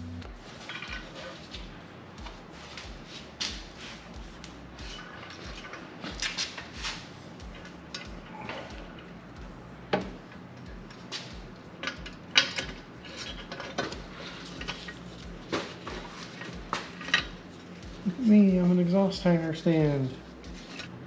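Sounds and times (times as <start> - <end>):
metal exhaust pipe clanking: 4.7 - 20.0.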